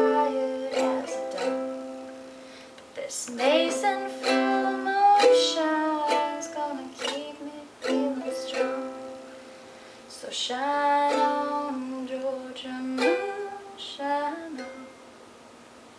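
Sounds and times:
ukulele strummed chords: 0.0 - 2.6, 3.3 - 15.0.

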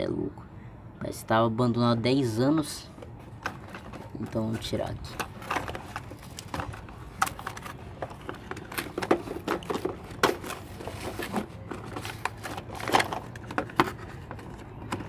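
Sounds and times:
plastic and cardboard clicks and scrapes: 3.0 - 15.0.

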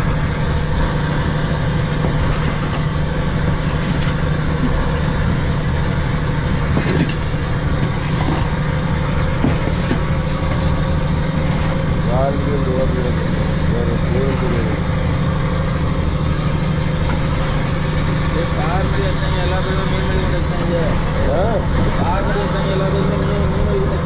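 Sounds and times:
boat engine droning: 0.0 - 24.0
shovel scraping fish on deck: 2.0 - 4.8, 11.3 - 11.9.

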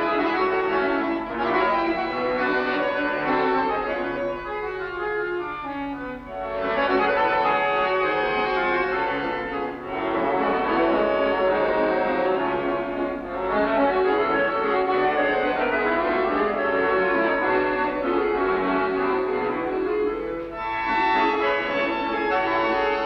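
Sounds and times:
accordions playing a waltz: 0.0 - 23.0.

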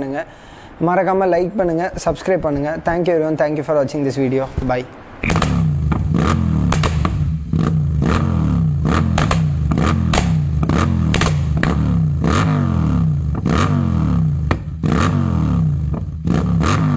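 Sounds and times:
exhaust pops and cracks: 5.2 - 7.3, 9.1 - 11.9, 14.4 - 14.7
motorcycle engine revving: 5.2 - 16.9.

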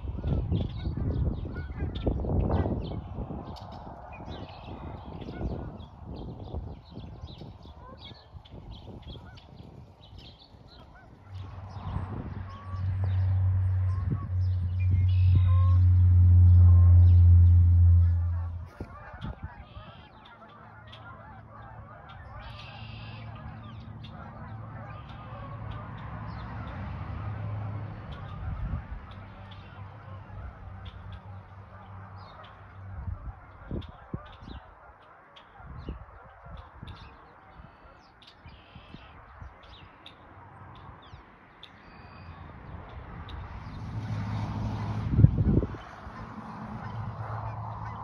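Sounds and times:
geese honking: 0.0 - 42.5, 45.4 - 48.0
small birds chirping: 0.3 - 15.9, 17.0 - 26.5, 33.7 - 43.9
low rumble: 11.4 - 19.2.

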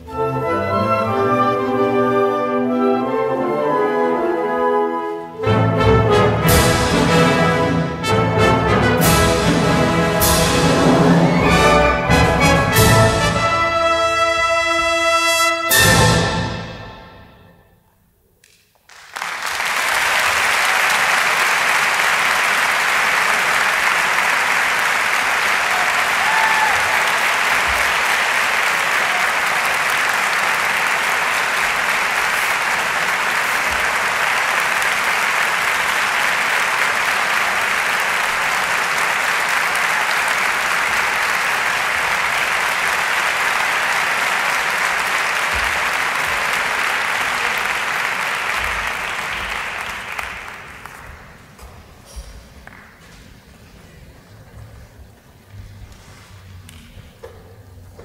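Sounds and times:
large audience applauding: 18.4 - 51.6.

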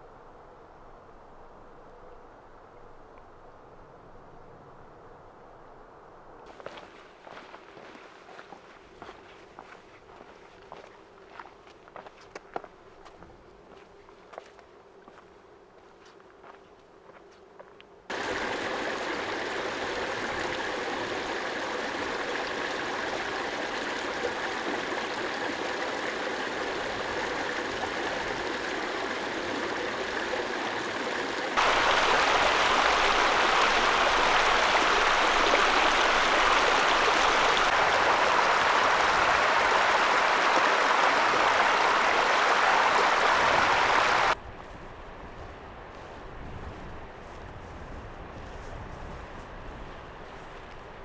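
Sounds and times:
stream rushing over rocks: 18.1 - 44.4.

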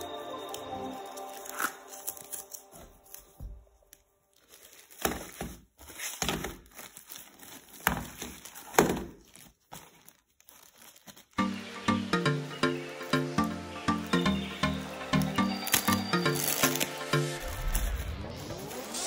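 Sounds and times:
plastic wrapping crinkling: 0.0 - 11.4, 15.5 - 18.1.

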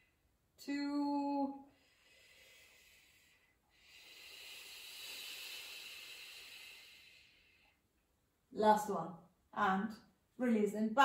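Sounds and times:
woman exhaling: 1.7 - 7.8.

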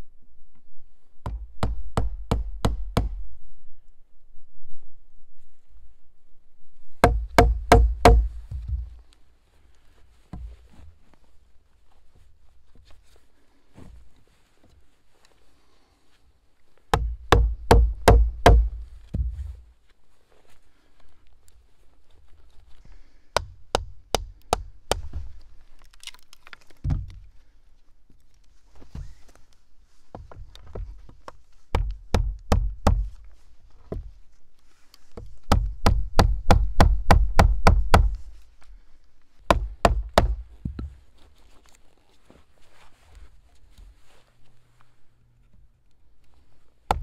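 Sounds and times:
sharp wooden knocks: 1.2 - 3.2, 7.0 - 9.0, 16.9 - 19.4, 30.2 - 33.2, 35.4 - 38.2, 39.5 - 40.9.

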